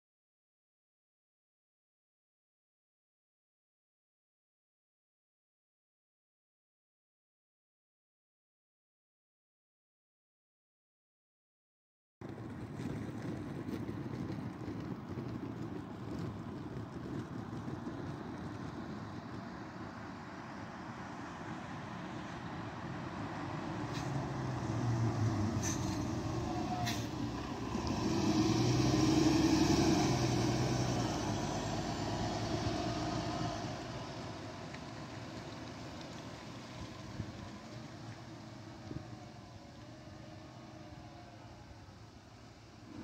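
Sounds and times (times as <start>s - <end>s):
bus approaching: 12.2s - 43.0s
street traffic rumble: 12.2s - 43.0s.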